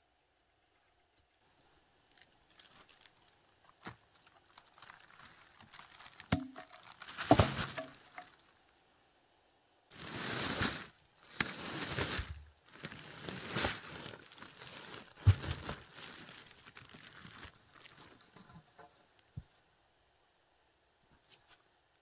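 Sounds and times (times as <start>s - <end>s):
tarp rustling and crinkling: 1.4s - 8.7s, 9.9s - 19.5s.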